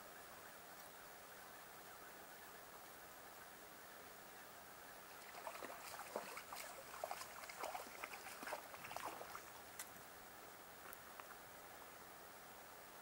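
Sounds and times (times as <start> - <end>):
fish splashing at water surface: 5.2 - 9.5.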